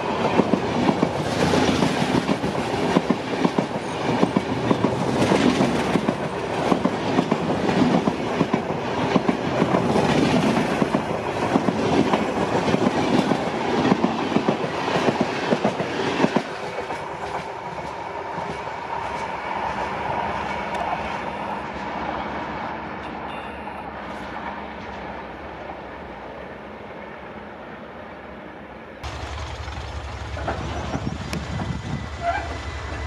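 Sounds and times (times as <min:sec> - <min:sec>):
train wheels clickety-clack: 0:00.0 - 0:21.2, 0:29.0 - 0:33.0
train rumble: 0:00.0 - 0:33.0.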